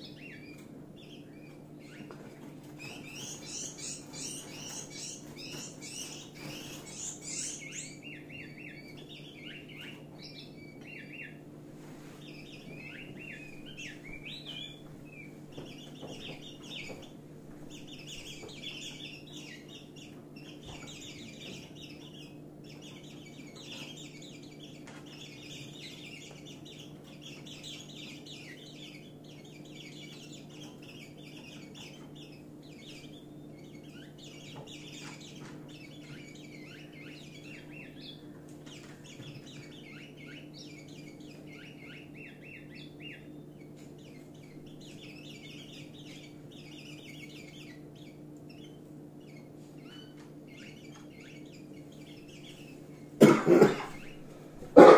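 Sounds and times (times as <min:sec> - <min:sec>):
birds chirping rapidly: 0:00.0 - 0:54.9.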